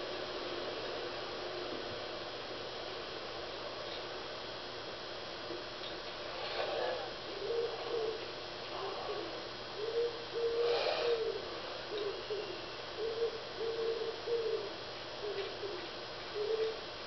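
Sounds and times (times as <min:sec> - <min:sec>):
pigeon cooing: 0:06.3 - 0:16.8.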